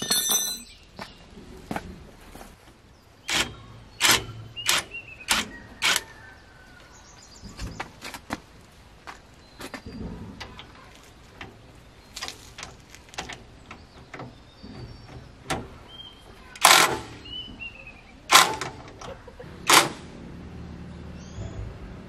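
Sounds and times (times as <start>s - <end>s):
impact wrench bursts: 3.3s - 6.0s, 16.6s - 17.3s.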